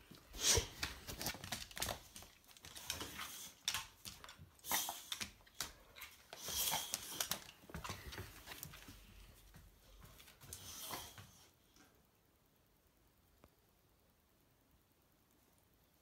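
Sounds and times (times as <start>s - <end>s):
dog claws clicking on floor: 0.1s - 10.6s.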